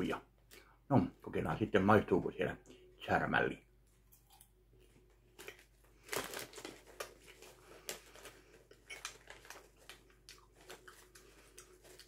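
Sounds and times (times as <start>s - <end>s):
popcorn crunching: 4.1s - 12.0s.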